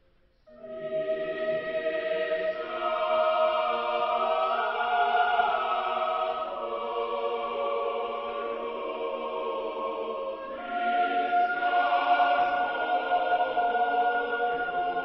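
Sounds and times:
choir singing a slow chant: 0.5s - 15.0s.

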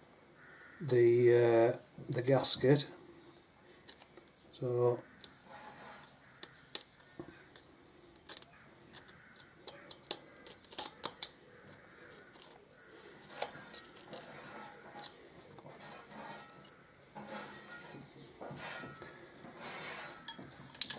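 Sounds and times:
pick tool scraping metal: 5.2s - 11.4s, 13.2s - 20.9s.

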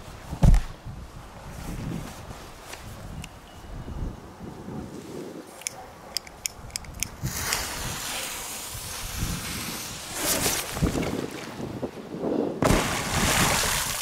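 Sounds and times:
wind rumble on microphone: 0.0s - 5.5s, 6.5s - 13.8s
firecracker fuse hissing: 7.2s - 10.7s
splash in water: 12.6s - 14.0s.

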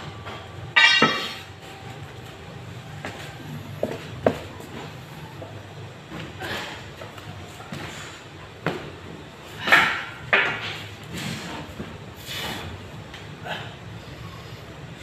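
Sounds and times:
iron dumbbells knocking: 0.8s - 1.4s.

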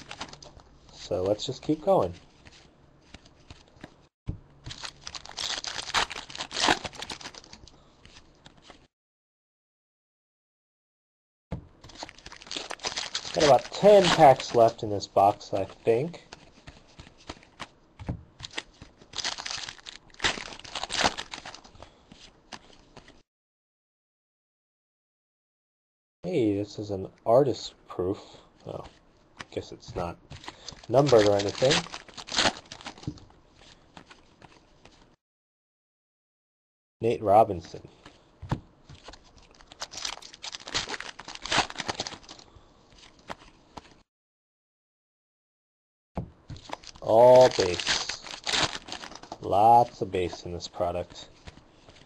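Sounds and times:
wrapper crinkling and tearing: 4.6s - 7.7s, 11.9s - 14.8s, 18.4s - 21.8s, 30.4s - 33.2s, 39.0s - 42.4s, 46.6s - 50.0s.

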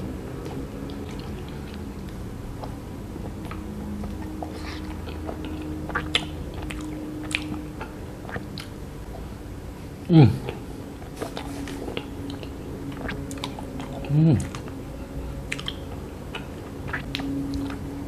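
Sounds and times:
biting and chewing: 0.0s - 9.3s, 10.5s - 18.0s
small mouth clicks: 11.2s - 14.7s, 15.5s - 17.8s.

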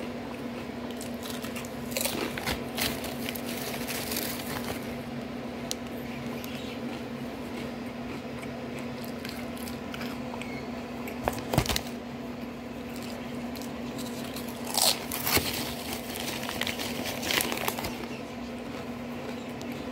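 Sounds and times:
potato chips crunching: 0.0s - 12.0s, 12.8s - 19.9s
chip bag crinkling: 0.9s - 5.2s, 12.9s - 19.9s.

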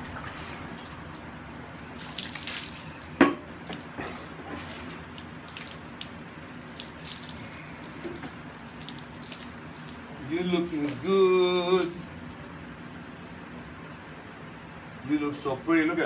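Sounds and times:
garden hose water spraying: 1.1s - 12.8s.

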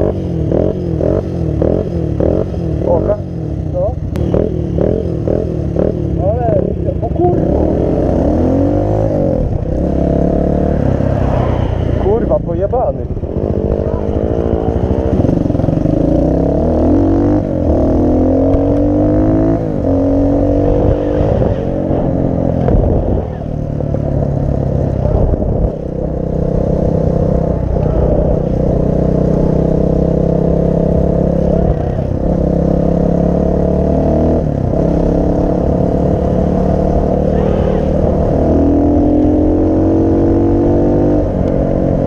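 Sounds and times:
motorcycle engine shifting gears: 0.0s - 42.0s.

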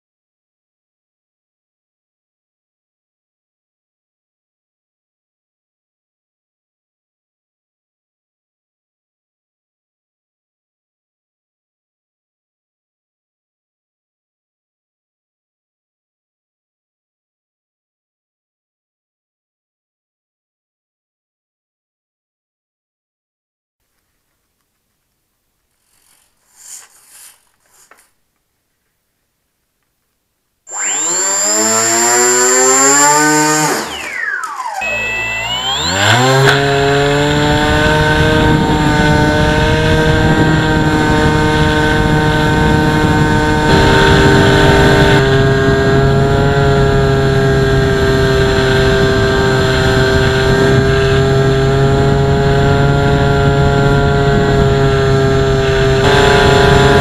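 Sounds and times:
electric motor and propeller whine: 30.7s - 57.0s.

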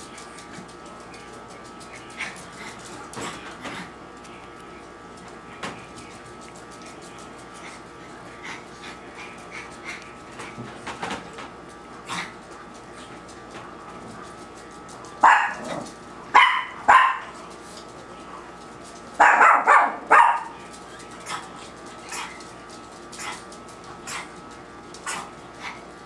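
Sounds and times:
small dog barking: 15.2s - 17.4s, 19.2s - 20.6s.

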